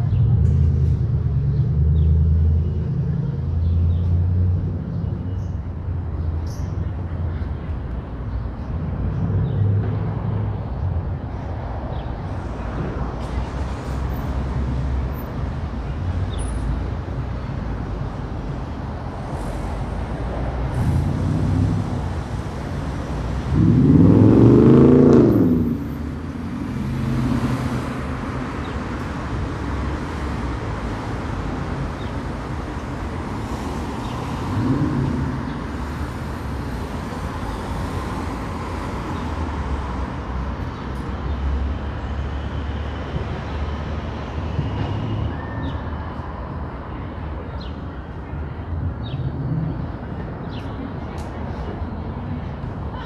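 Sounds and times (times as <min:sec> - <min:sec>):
rumble of passing cars: 0:00.0 - 0:53.0
vehicle engine passing close: 0:20.6 - 0:28.4, 0:34.1 - 0:36.6.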